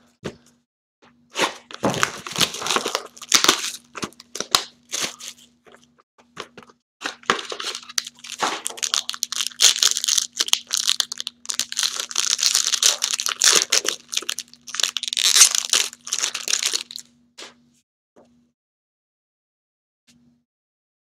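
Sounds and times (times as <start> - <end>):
foil pack crinkling: 1.7 - 5.5, 6.6 - 17.1.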